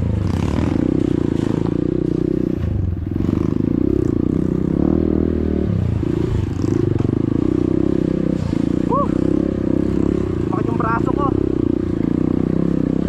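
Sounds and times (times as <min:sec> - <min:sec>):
motorcycle rattling over rocks: 0:00.0 - 0:04.7
motorcycle engine at low speed: 0:00.0 - 0:13.0.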